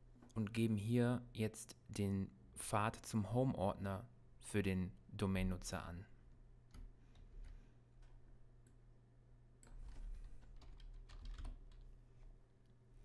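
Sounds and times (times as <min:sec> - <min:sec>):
faint keyboard typing: 0:06.6 - 0:08.8, 0:09.6 - 0:12.8.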